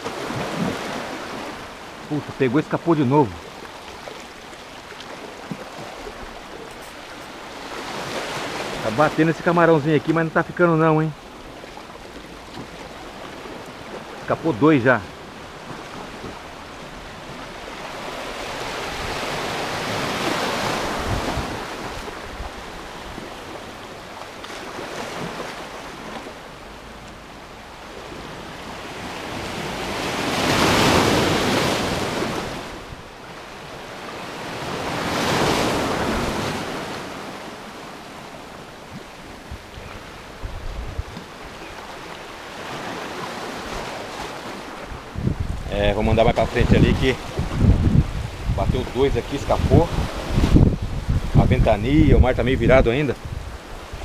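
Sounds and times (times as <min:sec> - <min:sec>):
sea waves washing over rocks: 0:00.0 - 0:54.0
wind buffeting microphone: 0:15.3 - 0:23.4, 0:39.3 - 0:41.4, 0:44.8 - 0:54.0.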